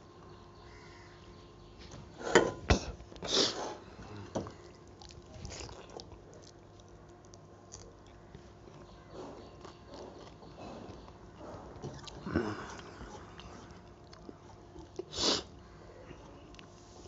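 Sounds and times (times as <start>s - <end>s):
person chewing: 3.2s - 15.6s.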